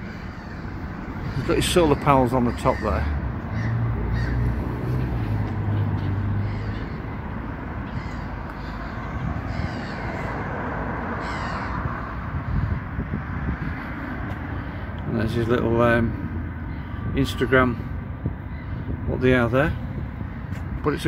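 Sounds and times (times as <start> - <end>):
crows cawing: 0.0 - 12.9, 16.5 - 19.0, 19.8 - 20.7
outdoor background noise: 0.0 - 21.0.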